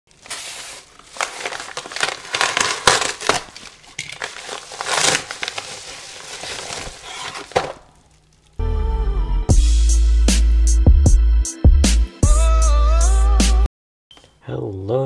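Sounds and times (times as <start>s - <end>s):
bubble mailer crinkling: 0.1s - 8.6s.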